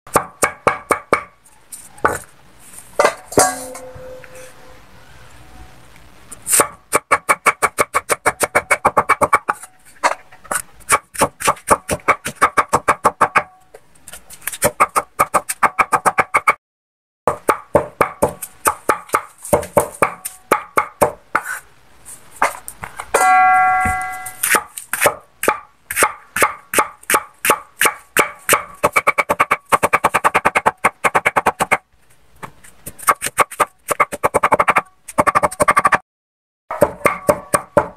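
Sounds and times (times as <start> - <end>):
cleaver chopping on wooden block: 36.7 - 37.9.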